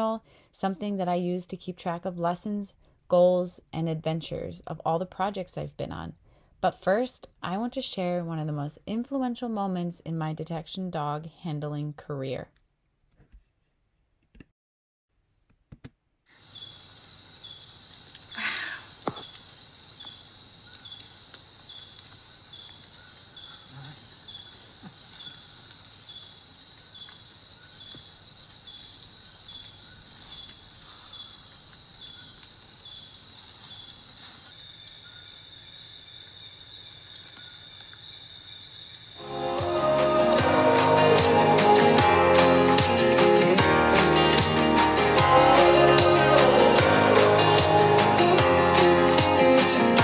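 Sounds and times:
crickets and insects chirping: 0:16.3 - 0:41.9.

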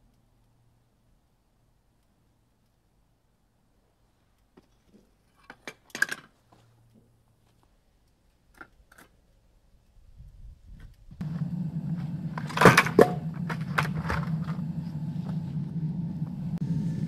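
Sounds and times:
low rumble: 0:11.1 - 0:17.0.

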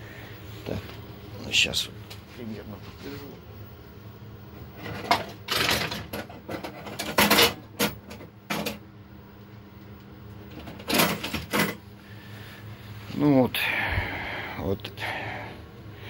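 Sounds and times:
handling clatters and rustles: 0:04.8 - 0:08.8, 0:10.5 - 0:11.8.

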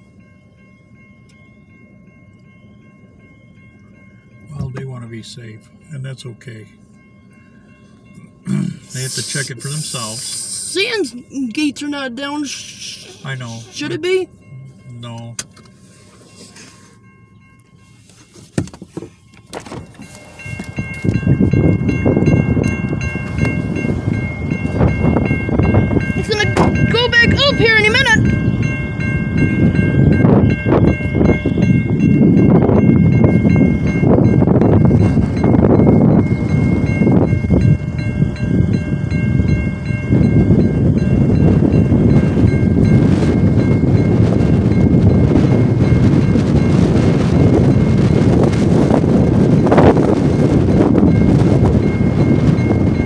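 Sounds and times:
railroad crossing bell ringing: 0:00.0 - 0:53.0
wind rumbling on microphone: 0:18.6 - 0:53.0.

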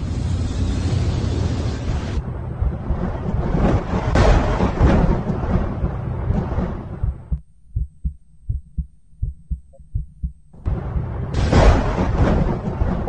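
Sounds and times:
heavy rumbling: 0:00.0 - 0:13.0
heartbeat thumps: 0:02.6 - 0:05.6, 0:06.2 - 0:13.0.

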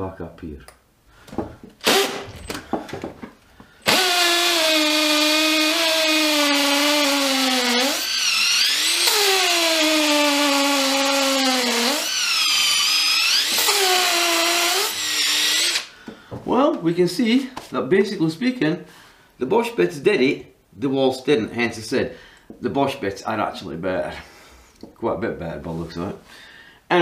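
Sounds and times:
hammer drill drilling into brick: 0:01.8 - 0:02.4, 0:03.8 - 0:15.9.

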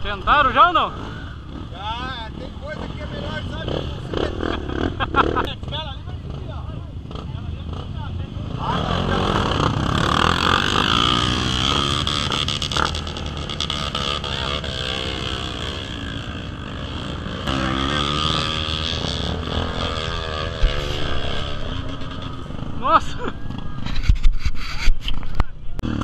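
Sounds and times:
vehicle engine running: 0:12.0 - 0:24.2.

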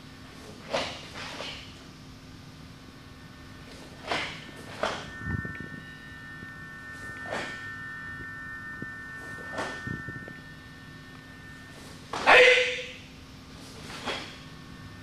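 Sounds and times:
rushing sounds of karate techniques: 0:03.9 - 0:05.0, 0:13.6 - 0:14.4
loud kiai shout: 0:12.2 - 0:13.0.

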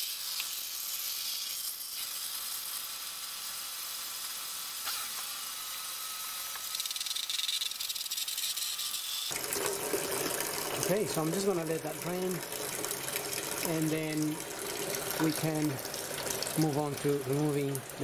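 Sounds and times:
coolant pouring and splashing: 0:09.3 - 0:18.0.

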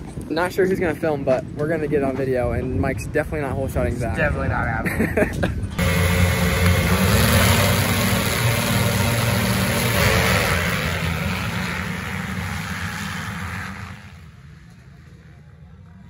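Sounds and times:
motocross bikes engines revving: 0:05.8 - 0:15.2.

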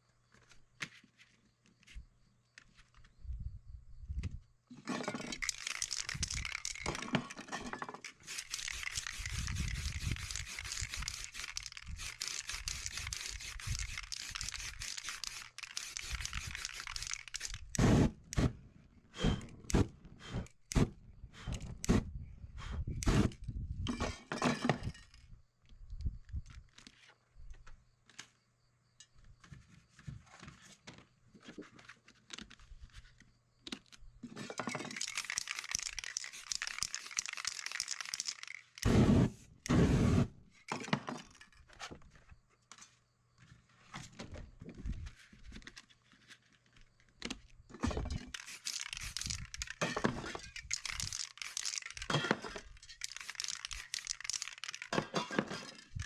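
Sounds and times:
spray paint can hissing: 0:05.4 - 0:07.0, 0:08.2 - 0:18.0, 0:34.9 - 0:39.3, 0:48.3 - 0:49.8, 0:50.5 - 0:52.2, 0:52.9 - 0:55.0.

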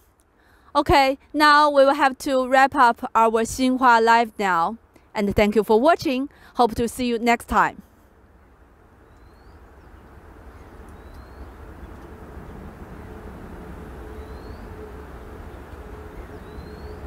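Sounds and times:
faint steady hum: 0:00.0 - 0:17.0
rising bird chirp: 0:08.3 - 0:17.0
low rumble: 0:11.4 - 0:17.0.

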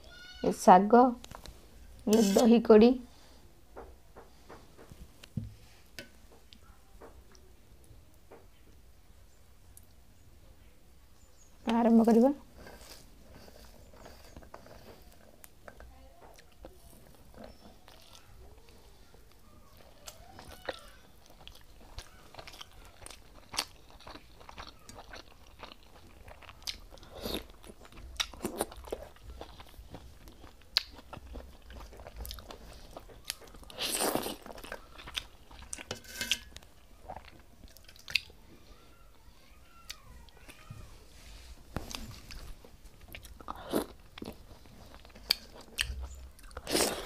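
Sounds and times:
chewing and mouth smacking: 0:19.3 - 0:35.9, 0:36.5 - 0:38.4, 0:41.8 - 0:47.0.

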